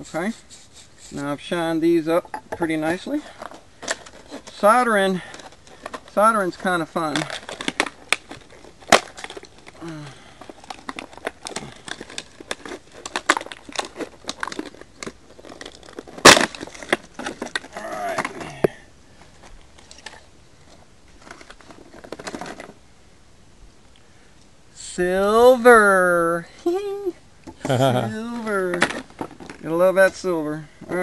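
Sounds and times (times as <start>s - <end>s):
plastic packaging rustling: 2.9s - 22.8s, 27.6s - 31.0s.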